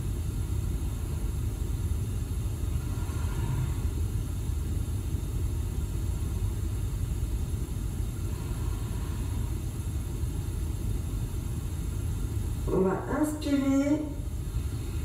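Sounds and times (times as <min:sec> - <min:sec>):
faint high whine: 0:00.0 - 0:15.0
hiss: 0:00.8 - 0:04.2, 0:06.1 - 0:10.5.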